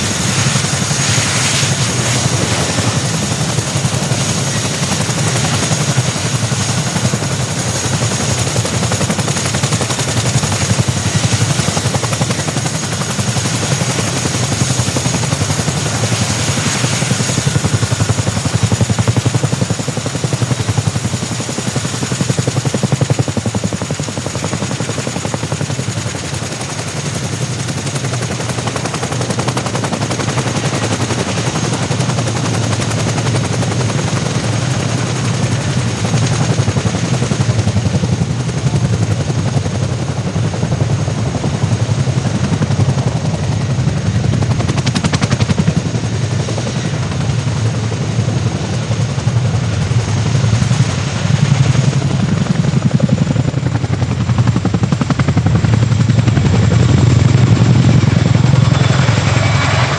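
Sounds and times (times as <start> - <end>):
high turbine whine: 0.0 - 21.9, 41.1 - 59.9
helicopter rotors chopping: 0.0 - 59.9.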